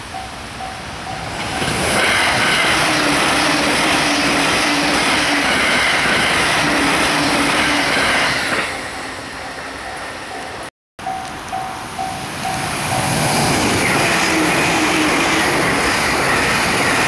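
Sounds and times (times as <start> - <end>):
level crossing warning bell: 0.0 - 1.5, 8.9 - 15.2
train passing at high speed: 0.0 - 17.0.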